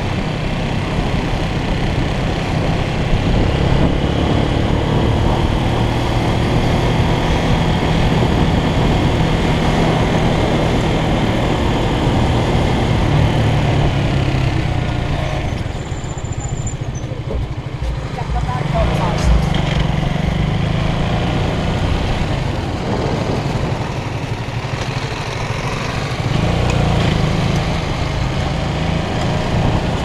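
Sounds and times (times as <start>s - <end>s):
wind rushing over microphone: 0.0s - 15.8s, 17.2s - 24.7s
motorcycle engine running: 0.0s - 30.0s.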